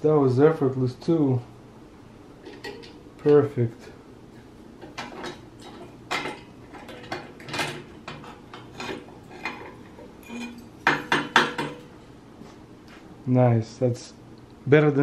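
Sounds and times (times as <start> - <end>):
steel plate clattering on metal table: 2.4 - 3.0, 4.8 - 11.9
loud metal knock: 10.8 - 11.9.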